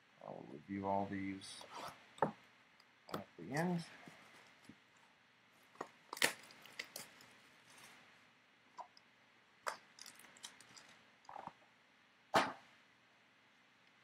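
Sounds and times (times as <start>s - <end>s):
card packs crinkling: 6.1s - 7.9s.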